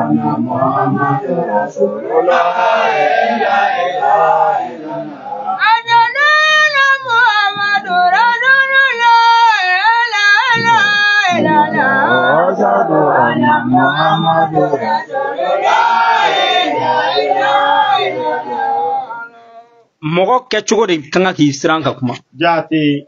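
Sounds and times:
men singing a chant together: 0.0s - 6.1s, 10.5s - 19.3s
high solo voice singing: 0.0s - 19.9s.

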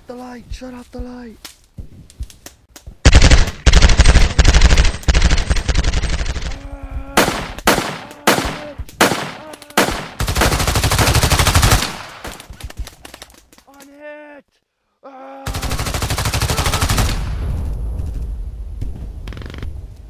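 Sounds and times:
machine-gun fire: 3.0s - 6.6s, 7.2s - 12.4s, 15.5s - 17.4s.

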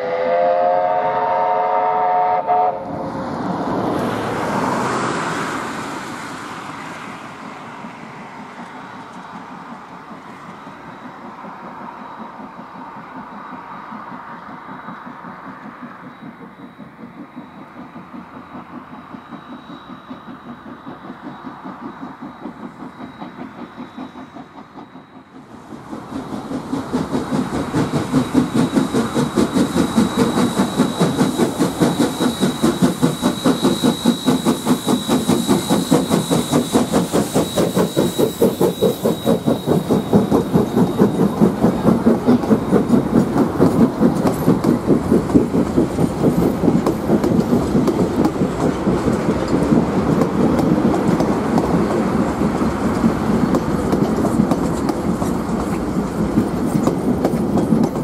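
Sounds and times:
steam locomotive exhaust chuffing: 0.0s - 58.0s
train wheels clattering on rails: 1.1s - 58.0s.

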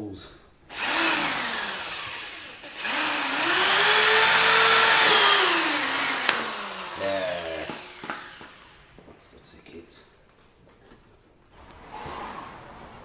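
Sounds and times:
electric drill spinning: 0.7s - 9.0s.

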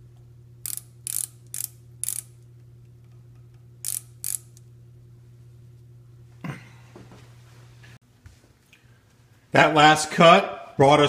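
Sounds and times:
micrometer ratchet clicking: 0.6s - 2.5s, 3.3s - 4.7s.

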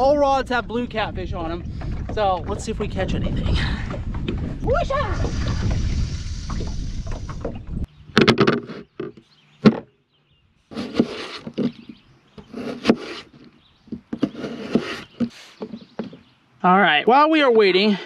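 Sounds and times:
wind rushing on microphone: 0.0s - 7.9s
knocks and scrapes on wood: 8.2s - 9.9s, 10.7s - 16.3s.

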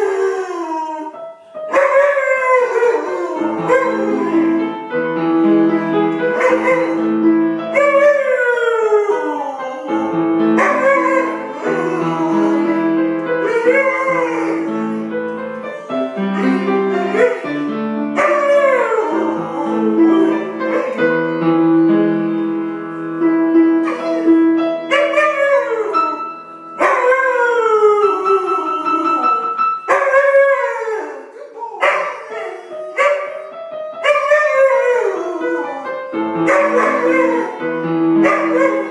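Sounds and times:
dog howling: 0.0s - 4.7s, 6.4s - 7.1s, 7.7s - 15.0s, 15.8s - 21.2s, 24.9s - 26.2s, 26.8s - 33.4s, 34.0s - 37.6s, 38.2s - 38.9s
music with long held chords: 9.8s - 24.9s.

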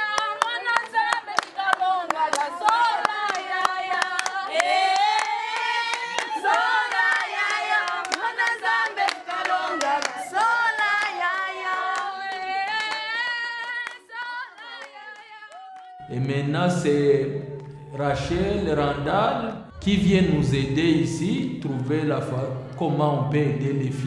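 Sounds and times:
hand-clapping: 0.0s - 16.0s
women singing together: 0.0s - 16.0s.

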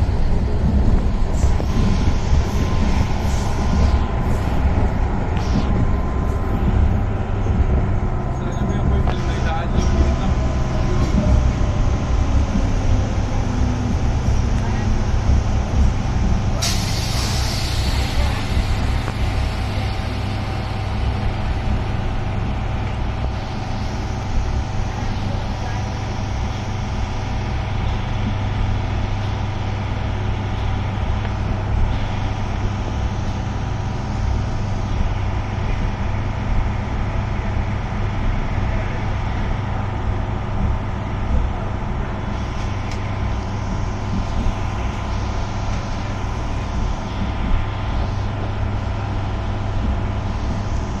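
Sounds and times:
train wheels rumbling on track: 0.0s - 51.0s.

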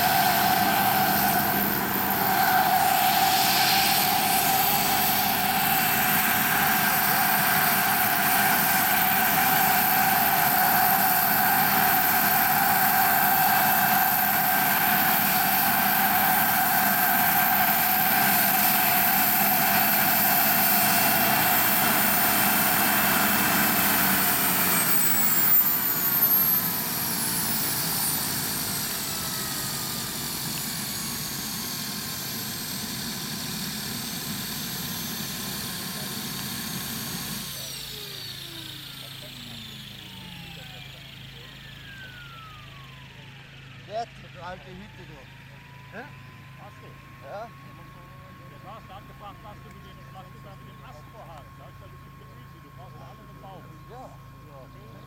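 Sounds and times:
helicopter rotor turning: 0.0s - 55.0s
turbine engine whine: 0.0s - 55.0s.

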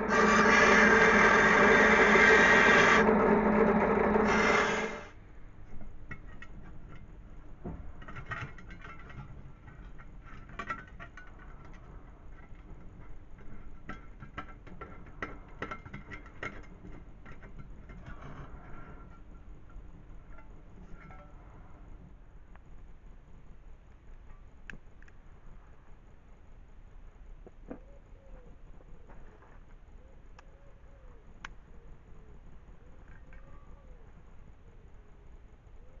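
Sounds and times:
drill press sanding metal: 0.0s - 5.1s
metallic clicks and scrapes: 7.8s - 22.1s.

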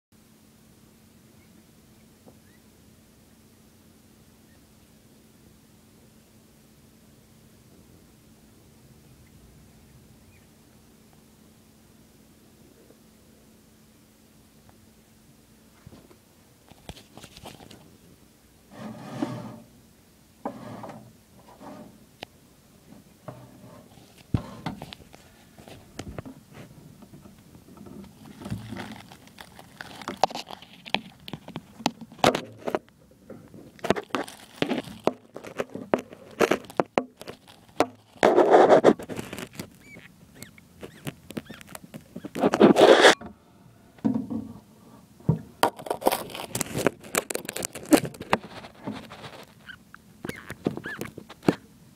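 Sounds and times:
phone scraping against glass: 18.7s - 19.7s, 20.5s - 22.0s, 33.8s - 43.2s, 45.7s - 51.6s.

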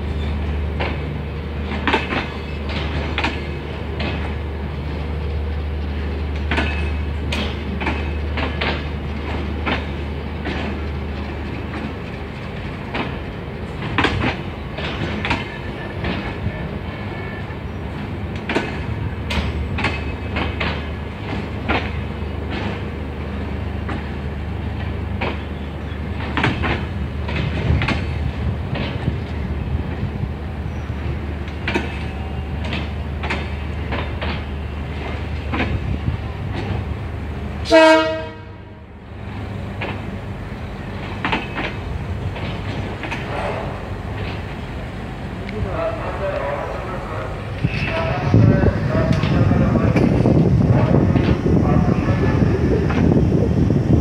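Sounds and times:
train coaches rumbling: 0.0s - 54.0s
wheels clicking over rail joints: 0.7s - 5.0s, 5.7s - 16.7s, 17.9s - 30.2s, 31.0s - 37.4s, 39.3s - 45.6s.

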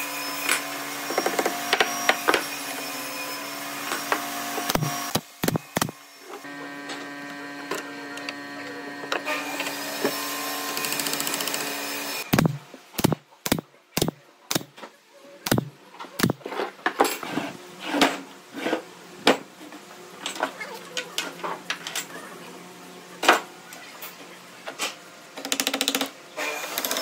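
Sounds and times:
steady motor hum: 3.8s - 11.2s, 12.2s - 14.7s
pneumatic nailer firing into wood: 4.6s - 6.0s, 12.3s - 14.7s, 15.5s - 16.4s.

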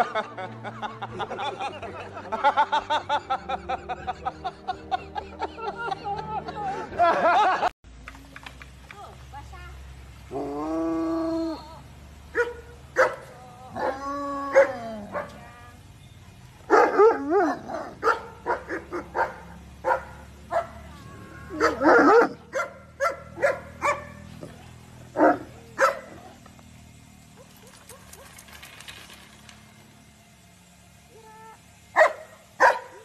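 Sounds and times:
dogs barking and yipping: 12.3s - 15.5s, 16.6s - 26.5s, 27.2s - 28.7s, 31.9s - 33.0s
dogs howling: 13.0s - 15.5s, 16.7s - 24.2s.

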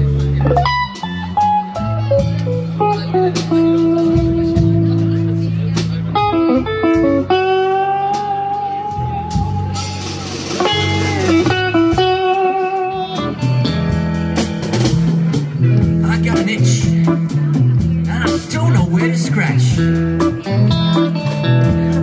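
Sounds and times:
bass guitar: 0.0s - 22.0s
drum kit: 0.0s - 22.0s
electric guitar lead: 0.0s - 22.0s.

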